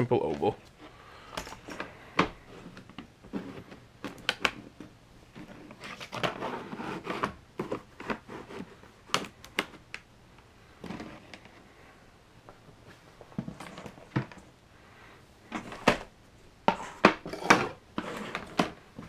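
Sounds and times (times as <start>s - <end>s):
plastic sliding and rubbing: 1.6s - 9.9s, 10.8s - 11.9s, 16.7s - 19.0s.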